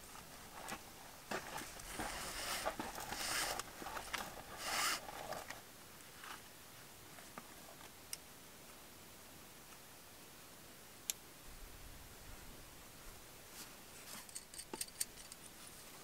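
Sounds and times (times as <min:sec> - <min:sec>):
webbing rustling and rasping: 0:00.5 - 0:05.6.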